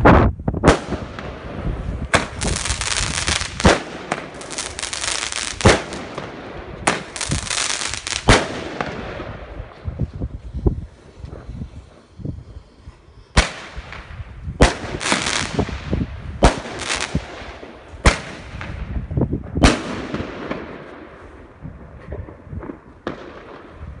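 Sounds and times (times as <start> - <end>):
firecracker bangs with echo: 0.6 - 9.4.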